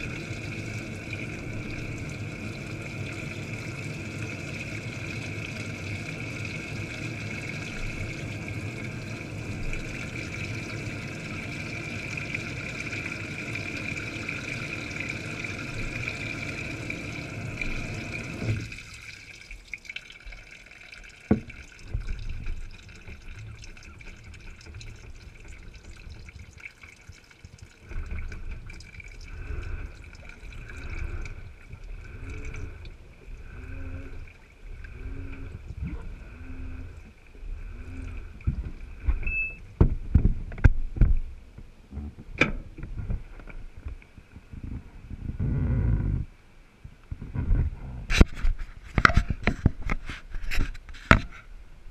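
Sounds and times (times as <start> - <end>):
water rushing underwater: 0.0 - 40.3
water sloshing: 0.0 - 41.3
low thumps of wet laundry: 21.3 - 29.2.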